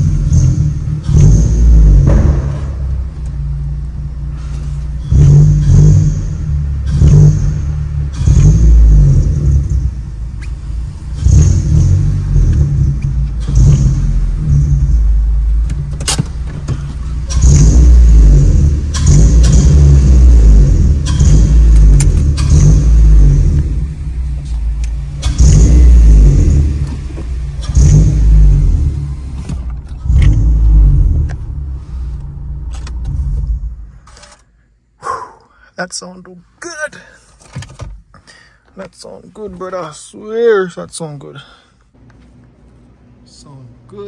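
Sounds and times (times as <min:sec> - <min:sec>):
car engine revving: 0:00.0 - 0:34.3.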